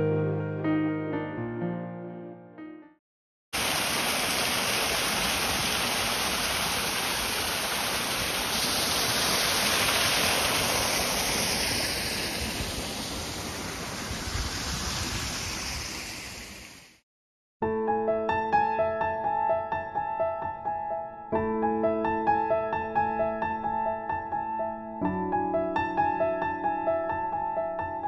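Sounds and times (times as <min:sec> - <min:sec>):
waterfall rushing: 0:03.6 - 0:16.9.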